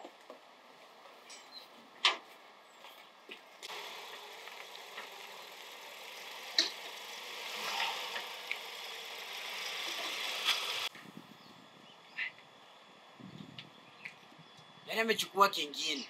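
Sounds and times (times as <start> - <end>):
minivan engine driving slowly: 3.7 - 10.9.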